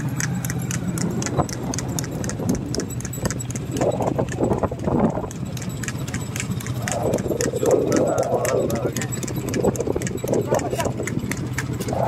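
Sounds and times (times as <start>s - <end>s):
cart rolling rumble: 0.0s - 12.0s
hooves clip-clopping on tarmac: 0.0s - 12.0s.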